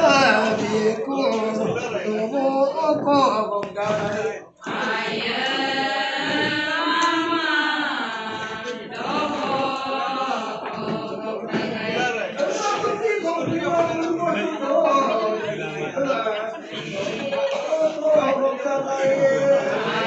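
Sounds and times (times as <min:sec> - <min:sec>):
women chanting in unison: 0:04.6 - 0:13.0, 0:15.0 - 0:17.5.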